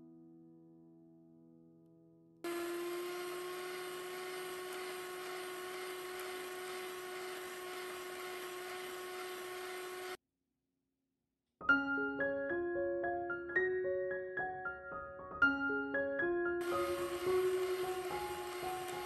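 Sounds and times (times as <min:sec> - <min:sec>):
electric hand mixer whining: 0:02.5 - 0:10.2, 0:16.6 - 0:19.0
piano music: 0:11.6 - 0:19.0.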